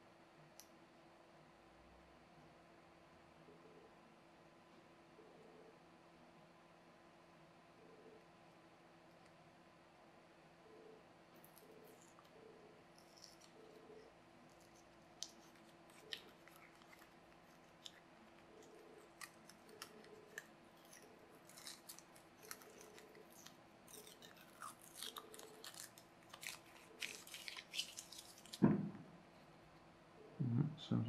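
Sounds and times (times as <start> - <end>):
plastic film crinkling: 14.4 - 28.6.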